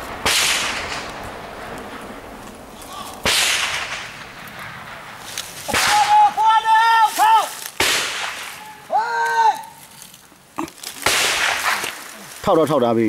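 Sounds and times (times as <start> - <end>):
gunshots with echoing tails: 0.0 - 6.2, 7.8 - 8.6, 11.0 - 11.9
man's long high-pitched shout: 5.9 - 7.6, 8.6 - 9.8.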